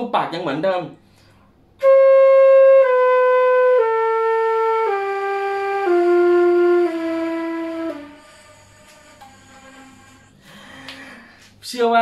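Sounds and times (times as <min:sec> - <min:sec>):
flute playing descending scale: 0:01.8 - 0:10.4.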